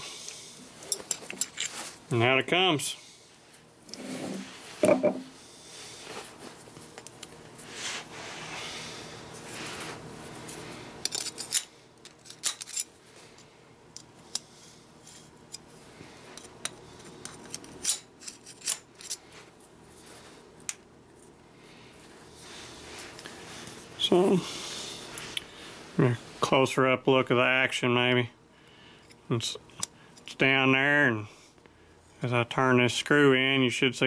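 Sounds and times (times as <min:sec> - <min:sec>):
metal parts clicking and tapping: 0:11.0 - 0:12.9, 0:16.4 - 0:19.2.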